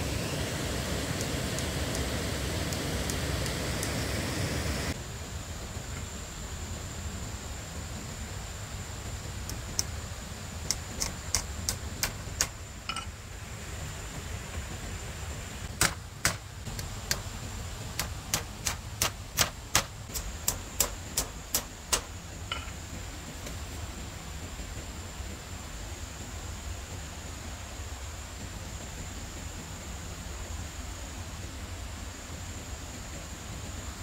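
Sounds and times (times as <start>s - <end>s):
tool striking wood: 10.7s - 13.1s, 15.7s - 17.3s, 18.0s - 22.8s.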